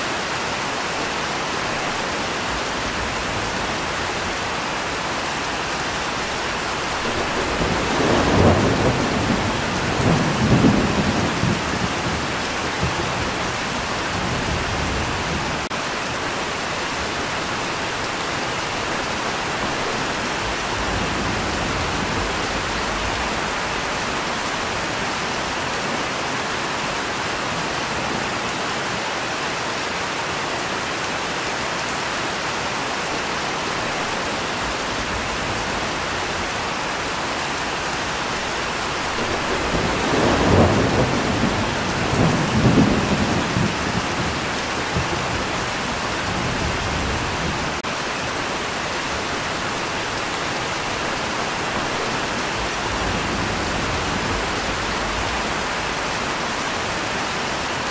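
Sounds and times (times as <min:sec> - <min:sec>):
steady rain falling: 0:00.0 - 0:57.9
thunder rolling: 0:06.8 - 0:15.7, 0:38.6 - 0:47.8.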